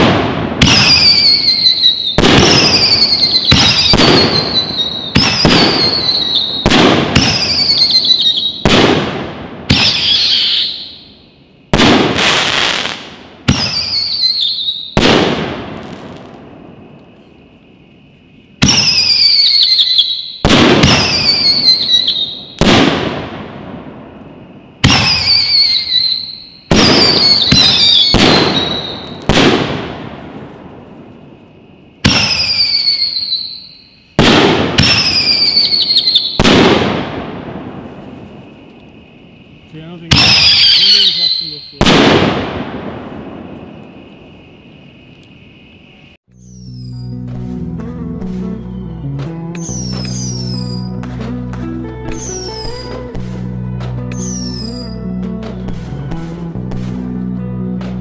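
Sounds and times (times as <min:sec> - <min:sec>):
whistling firework shells firing: 0:00.0 - 0:17.6, 0:18.4 - 0:47.5, 0:48.2 - 0:51.4, 0:52.1 - 0:57.1.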